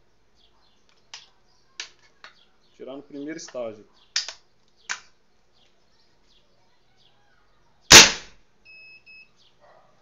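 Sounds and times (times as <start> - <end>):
air rifle shot: 7.9 - 8.4
short high beeps: 8.6 - 9.3.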